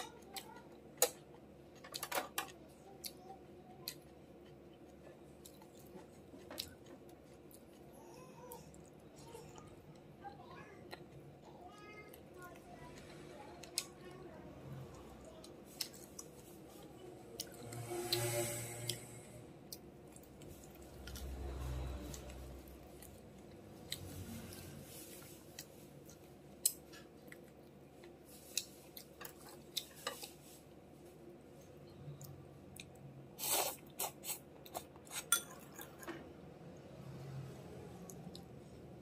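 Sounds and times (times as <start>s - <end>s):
person chewing: 3.8s - 7.9s, 32.1s - 36.1s.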